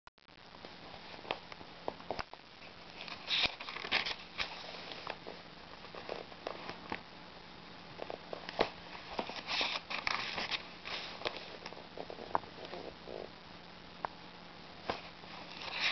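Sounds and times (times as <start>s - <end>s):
paper rustling: 2.1s - 7.0s, 8.2s - 12.8s, 14.9s - 15.9s
page turning: 3.0s - 7.0s, 8.0s - 12.8s, 14.9s - 15.9s.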